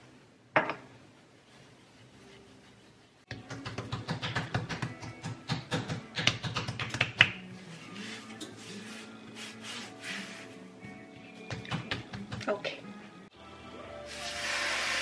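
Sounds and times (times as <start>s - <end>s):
background music: 3.3s - 15.0s.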